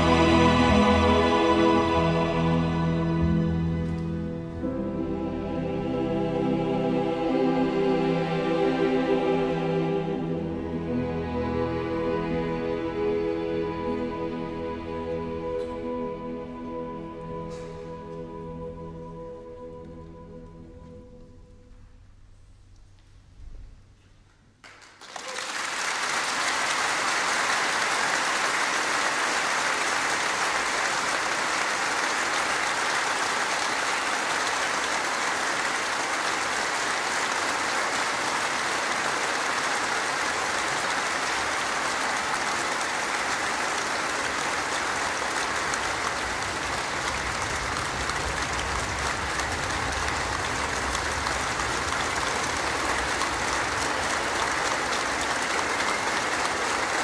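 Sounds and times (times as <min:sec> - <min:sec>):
audience applauding: 0:00.0 - 0:03.0, 0:24.6 - 0:57.0.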